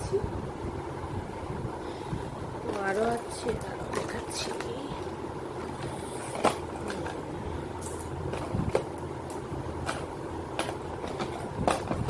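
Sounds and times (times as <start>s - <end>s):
steady background hum: 0.0s - 12.0s
jewellery boxes clicking and knocking: 5.6s - 7.2s, 7.8s - 12.0s.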